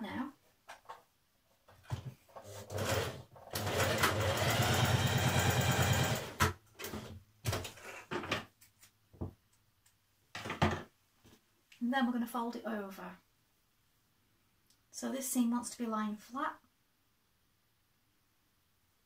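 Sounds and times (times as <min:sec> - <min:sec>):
electric sewing machine stitching: 0:02.4 - 0:07.1.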